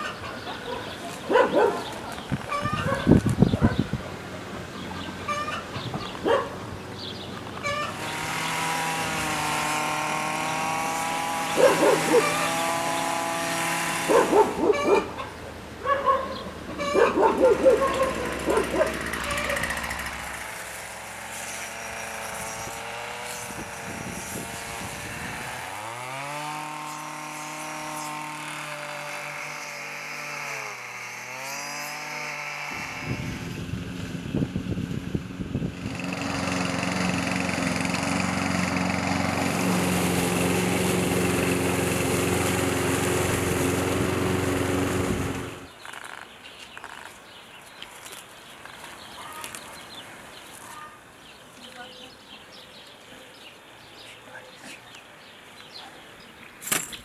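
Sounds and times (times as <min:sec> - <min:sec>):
lawn mower engine running: 0:00.0 - 0:15.8, 0:16.5 - 0:50.8
string trimmer engine revving: 0:01.1 - 0:15.3, 0:16.8 - 0:47.4.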